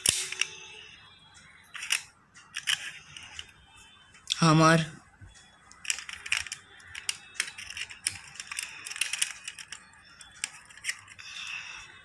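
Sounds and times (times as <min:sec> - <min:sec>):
toy car doors clicking: 0:01.7 - 0:03.6, 0:05.7 - 0:11.2.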